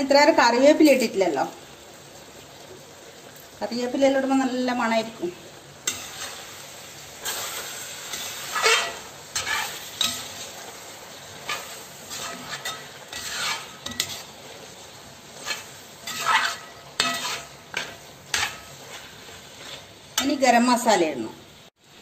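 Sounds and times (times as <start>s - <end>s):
curry sizzling: 0.0s - 22.0s
metal spoon scraping a pot: 7.2s - 10.5s, 11.4s - 14.4s, 15.4s - 20.4s.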